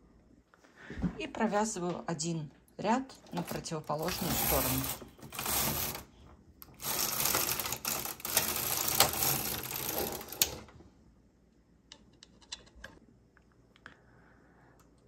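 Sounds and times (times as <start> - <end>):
knitting machine carriage clicking: 3.1 - 10.8.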